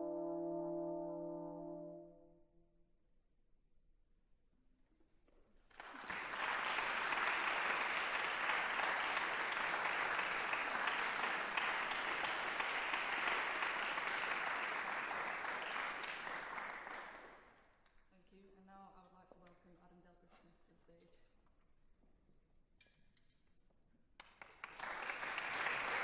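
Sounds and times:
audience applause: 5.7 - 17.5, 24.2 - 26.0.

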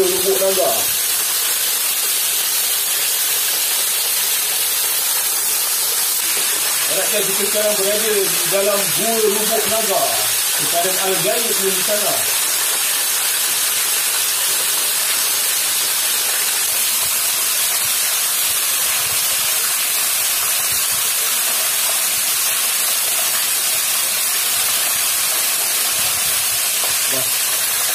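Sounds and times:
waterfall rushing: 0.0 - 1.9, 5.4 - 18.6.

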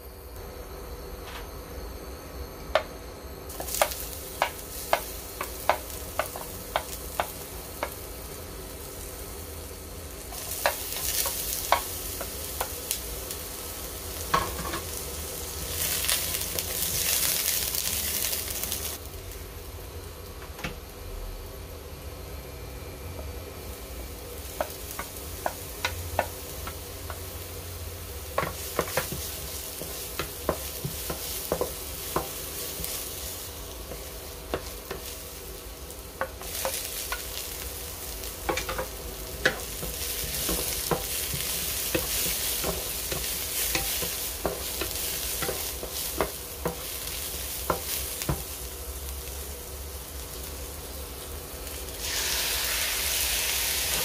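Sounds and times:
vegetables sizzling in oil: 2.7 - 21.8, 23.3 - 54.0
spatula tapping a pan: 3.5 - 8.1, 10.3 - 13.0, 24.5 - 27.4, 28.3 - 33.0, 33.8 - 35.2, 36.1 - 37.4, 38.4 - 48.6.

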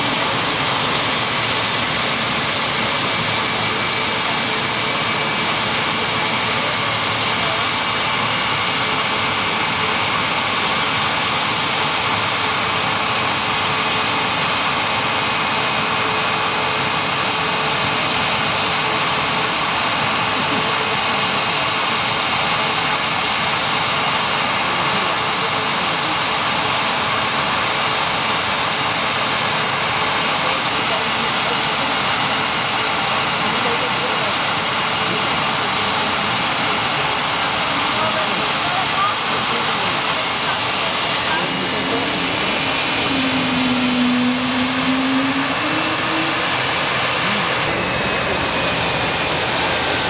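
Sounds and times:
jet engines rushing hiss: 0.0 - 50.0
faint high whine: 40.1 - 50.0.

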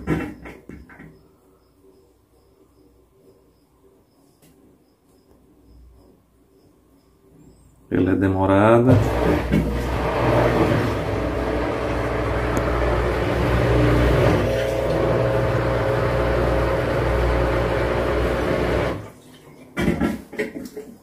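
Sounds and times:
washing machine motor and pump humming: 8.8 - 19.8.

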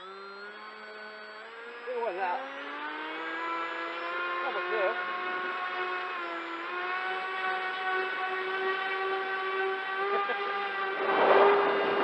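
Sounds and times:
electric motor and propeller whining: 0.0 - 12.0
wind noise: 11.0 - 12.0.

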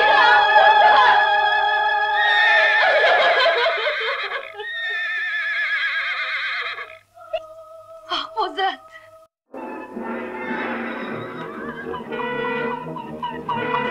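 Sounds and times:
horse whinnying: 2.2 - 7.1.

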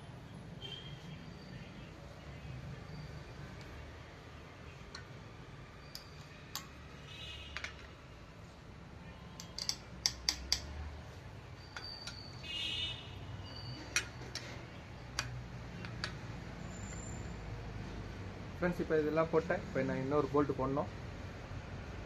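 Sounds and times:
metallic clicks of tools on bolts: 4.9 - 5.2, 5.8 - 6.8, 7.5 - 8.0, 9.4 - 10.8, 11.6 - 12.4, 13.8 - 16.3.

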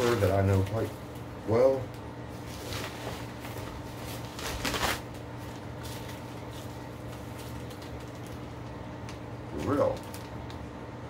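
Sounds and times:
steady low hum: 0.0 - 11.0
packaging rustling and crinkling: 2.3 - 10.7.

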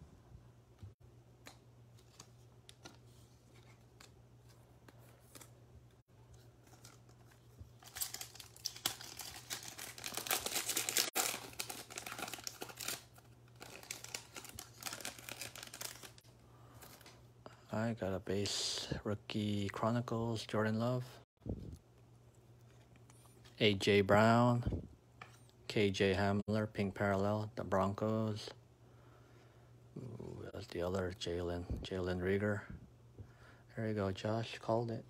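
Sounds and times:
foil wrapper crinkling: 6.5 - 16.2.

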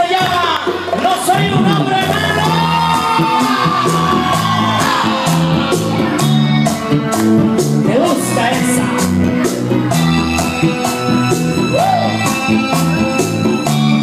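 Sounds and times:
fast high percussion: 0.0 - 14.0
live band playing: 0.0 - 14.0
man singing: 7.8 - 9.1.

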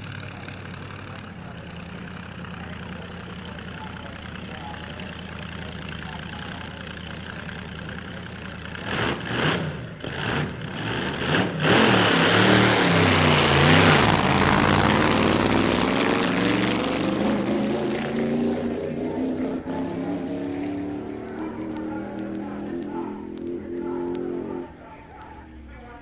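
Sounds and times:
dragster engine revving: 0.0 - 26.0.

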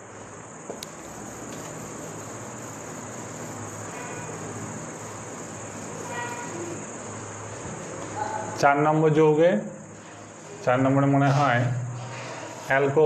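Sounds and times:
high-pitched insect chirring: 0.7 - 8.6.

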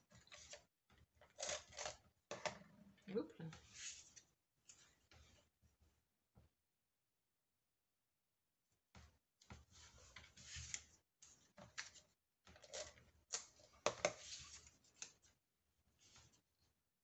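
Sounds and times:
paper rustling and scraping: 0.1 - 2.0, 3.6 - 5.5, 9.6 - 15.3.

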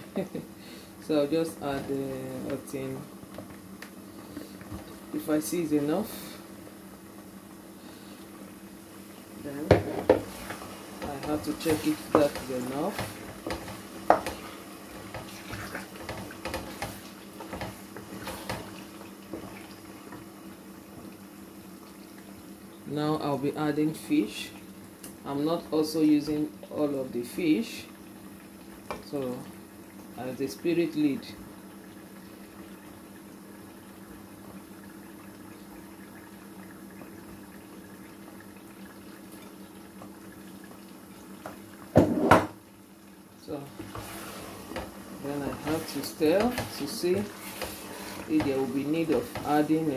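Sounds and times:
stew bubbling in a pot: 0.1 - 49.9
wooden spoon stirring stew: 9.6 - 21.1, 43.6 - 49.9.

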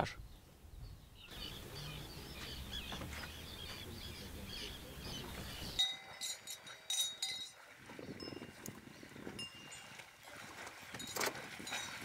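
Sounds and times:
birds chirping and twittering: 0.0 - 10.0
cowbell ringing: 5.8 - 7.6, 8.2 - 8.7, 9.4 - 10.0, 11.0 - 12.0.

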